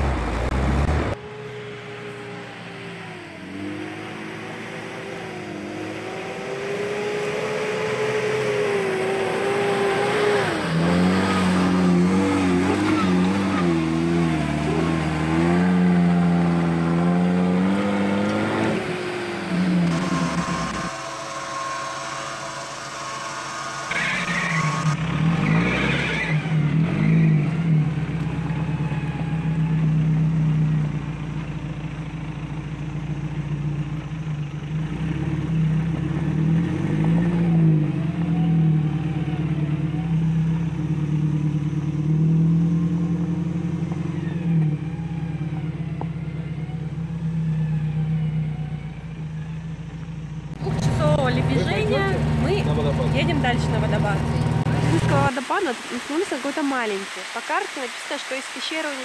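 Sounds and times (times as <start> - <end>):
engine revving under load: 0.0 - 57.7
electric winch whining: 19.3 - 27.3.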